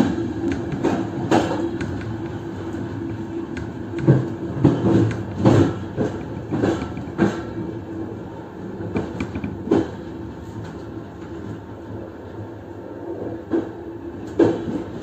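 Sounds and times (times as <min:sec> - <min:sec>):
wheels clunking on rail joints: 0:00.0 - 0:11.6
train rumble and hum: 0:00.0 - 0:15.0.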